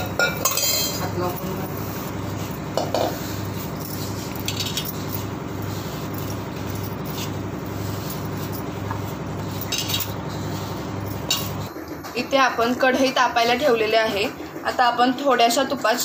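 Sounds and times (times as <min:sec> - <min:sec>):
pulsing low hum: 0:01.1 - 0:11.9.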